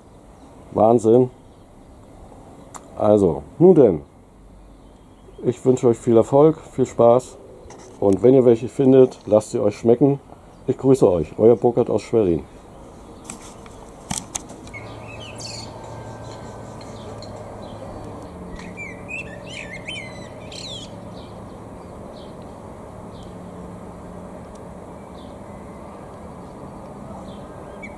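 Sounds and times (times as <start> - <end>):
blackbird whistling song: 14.7 - 22.4, 24.9 - 27.9.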